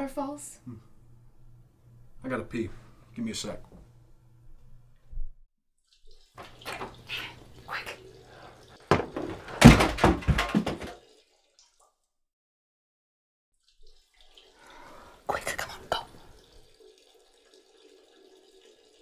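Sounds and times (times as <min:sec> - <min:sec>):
door knocks and rustling: 0:08.9 - 0:11.0
door thudding and rattling: 0:08.9 - 0:11.0.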